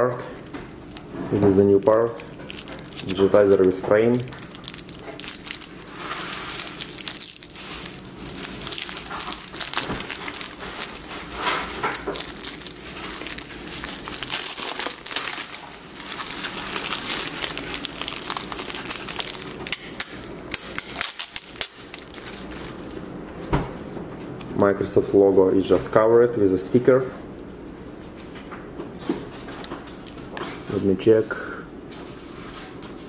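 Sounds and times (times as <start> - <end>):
plastic wrap peeling and crinkling: 0.0 - 23.6, 29.2 - 30.8.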